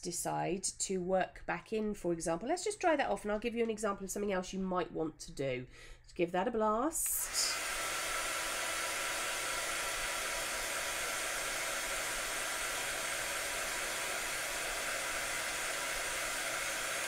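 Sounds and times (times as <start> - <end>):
hot-air dryer blowing: 7.0 - 17.0.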